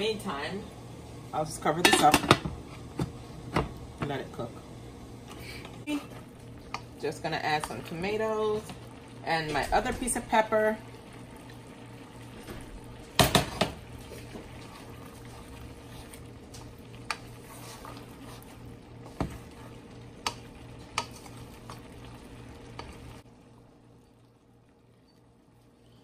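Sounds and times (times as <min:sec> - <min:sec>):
frying sizzle: 0:00.0 - 0:26.0
spoon stirring in pot: 0:13.2 - 0:22.0.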